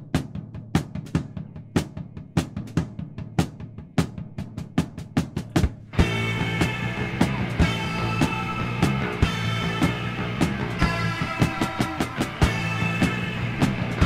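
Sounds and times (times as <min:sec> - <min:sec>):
drum kit beat: 0:00.0 - 0:14.0
band playing held chords: 0:05.6 - 0:14.0.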